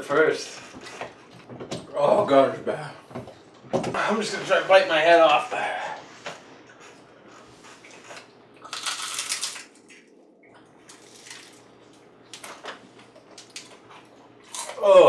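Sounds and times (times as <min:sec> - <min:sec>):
crunching chewing: 0:07.6 - 0:12.0, 0:13.0 - 0:14.9.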